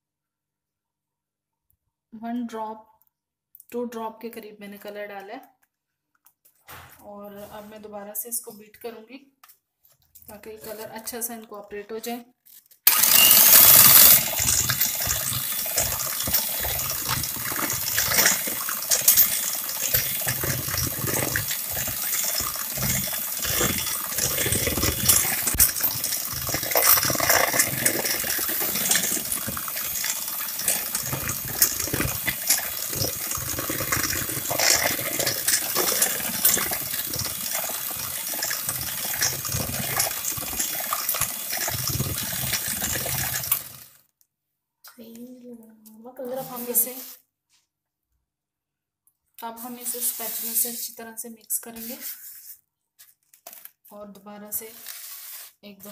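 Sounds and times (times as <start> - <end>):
beaters clicking: 12.9 - 43.7
churning buttercream: 12.9 - 43.8
electric hand mixer motor: 12.9 - 43.8.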